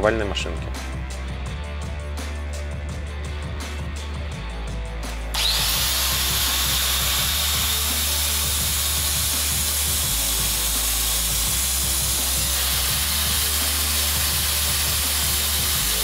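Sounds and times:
grinder motor whining: 0:05.3 - 0:16.0.

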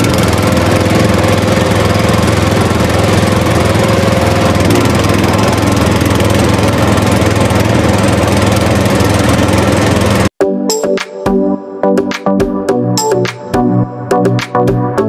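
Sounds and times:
small engine puttering: 0:00.0 - 0:10.3.

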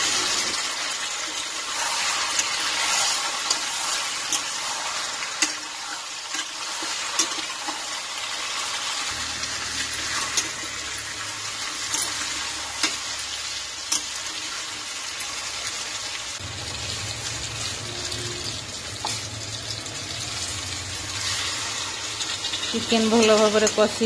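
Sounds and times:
chicken sizzling in a pan: 0:00.0 - 0:24.0
water pouring into a pan: 0:07.5 - 0:23.8.

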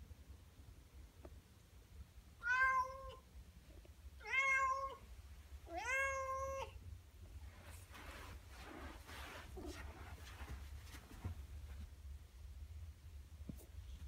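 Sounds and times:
cat meowing: 0:02.4 - 0:03.2, 0:04.2 - 0:05.0, 0:05.7 - 0:06.8.

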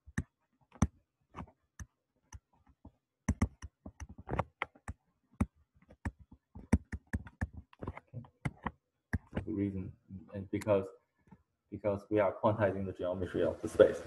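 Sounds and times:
stylus clicking on drawing tablet: 0:00.0 - 0:09.5.

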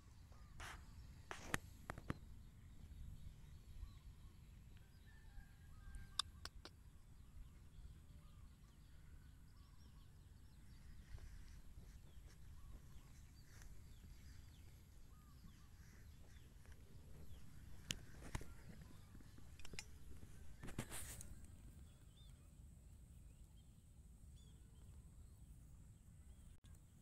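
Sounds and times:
faint bird chirps: 0:00.0 - 0:27.0
sharp clicks: 0:06.1 - 0:06.8, 0:16.6 - 0:21.4.

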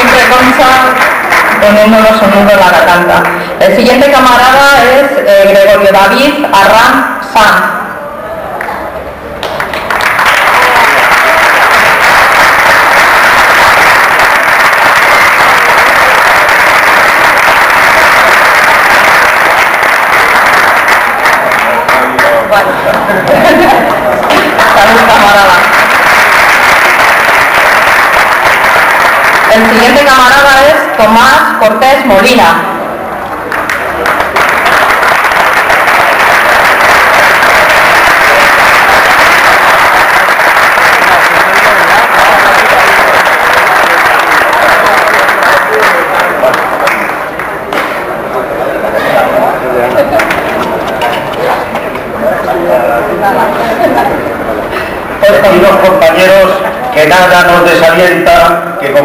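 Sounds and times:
audience applauding: 0:00.0 - 0:02.2, 0:08.5 - 0:30.6, 0:33.3 - 0:55.8.

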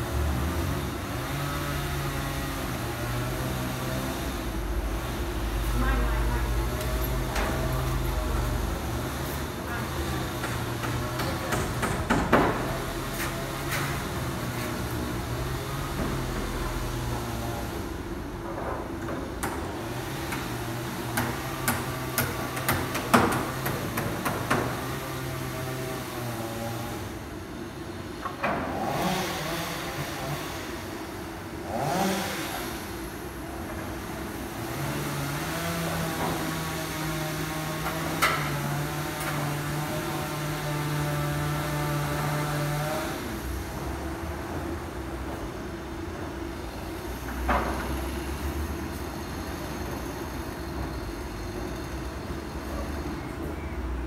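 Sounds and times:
hammer blows on a roof: 0:10.0 - 0:14.5, 0:18.6 - 0:25.0.

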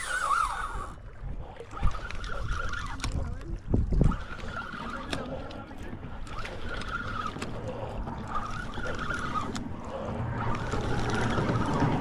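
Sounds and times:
wavering higher whine: 0:00.0 - 0:01.0, 0:06.3 - 0:12.0
low motor hum: 0:00.0 - 0:12.0.

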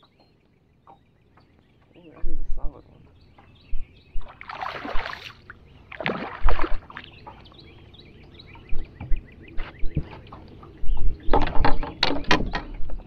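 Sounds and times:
birds chirping: 0:00.0 - 0:13.0
loud splashes: 0:04.2 - 0:07.0
fish splashing and thrashing: 0:04.2 - 0:07.6.

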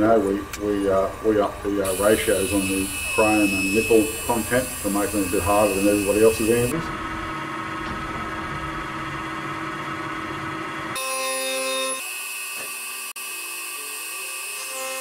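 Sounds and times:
milling machine cutting steel: 0:00.0 - 0:06.9, 0:10.4 - 0:15.0.

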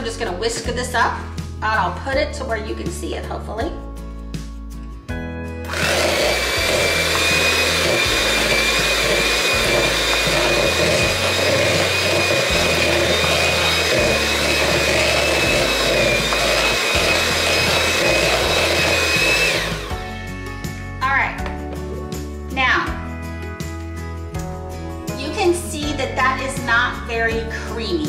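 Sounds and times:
electric hand mixer whining: 0:05.6 - 0:20.2.

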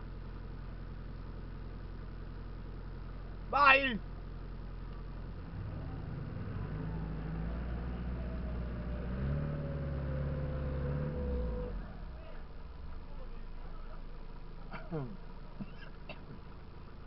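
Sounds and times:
vehicle engine pulling under load: 0:04.4 - 0:17.0.

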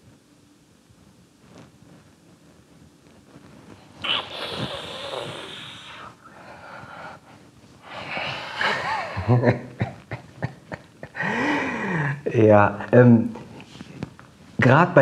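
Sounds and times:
man humming: 0:04.0 - 0:06.1
man exhaling breathily: 0:04.0 - 0:07.2, 0:07.8 - 0:08.9, 0:11.2 - 0:12.2.

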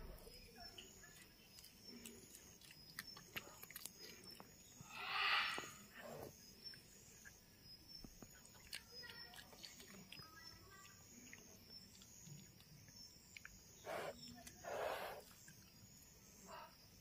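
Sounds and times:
animal chewing with wet smacking: 0:00.3 - 0:04.8, 0:05.8 - 0:16.2
breathy hiss: 0:04.8 - 0:06.3, 0:13.8 - 0:15.3.

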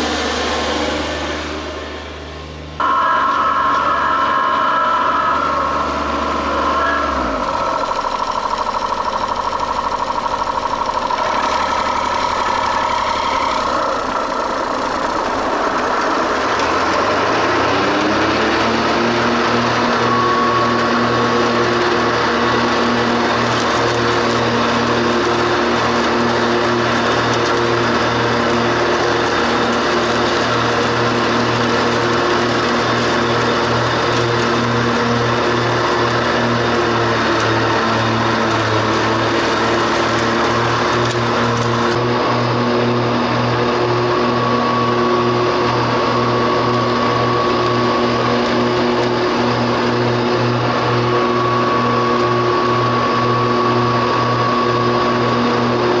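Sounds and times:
ride-on lawn mower engine: 0:00.0 - 0:56.0.

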